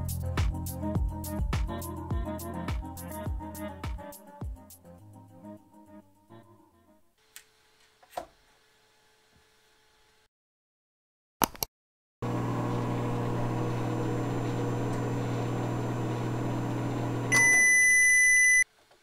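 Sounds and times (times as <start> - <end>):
microwave hum: 12.2 - 19.0
microwave high beep: 17.1 - 18.7.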